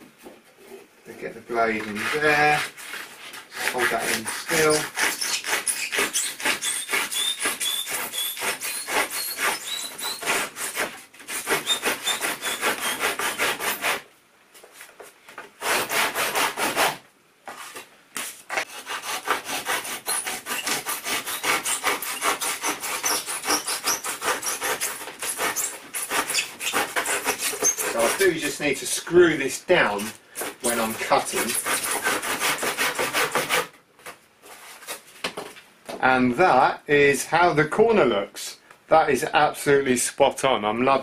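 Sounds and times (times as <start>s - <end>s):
hand saw cutting: 1.7s - 14.1s, 15.6s - 17.0s, 18.5s - 29.1s, 29.8s - 33.7s.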